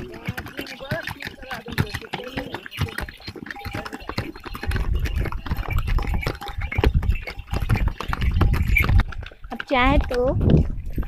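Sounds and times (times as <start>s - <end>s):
horse hooves clopping on stone: 0.0s - 11.0s
wind buffeting microphone: 4.0s - 11.0s.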